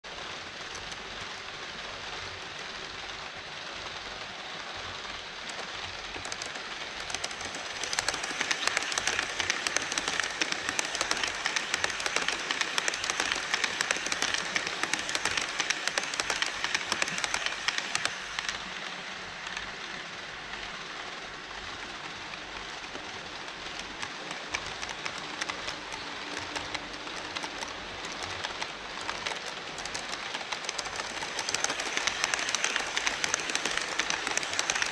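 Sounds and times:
model train wheels and motors whirring: 0.0 - 34.9
wheels clicking over track: 0.1 - 34.9.

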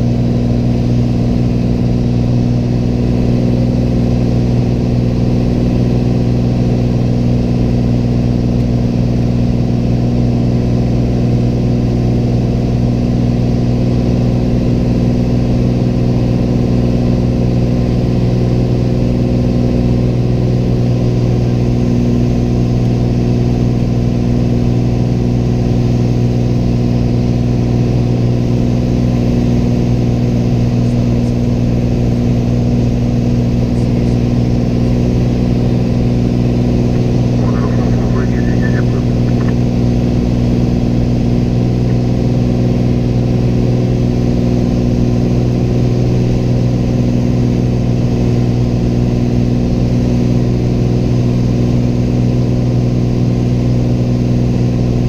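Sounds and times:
light aircraft engine droning: 0.0 - 55.0.

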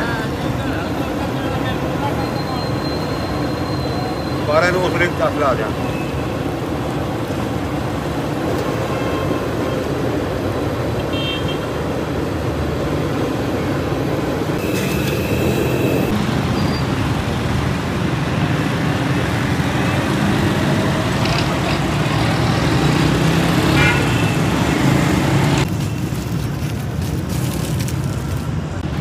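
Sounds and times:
road traffic noise: 0.0 - 29.0
short high-pitched horn: 14.6 - 16.2.

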